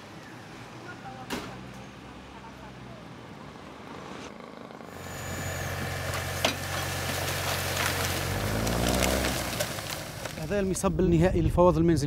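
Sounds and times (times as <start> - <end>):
tractor engine running: 4.3 - 10.8.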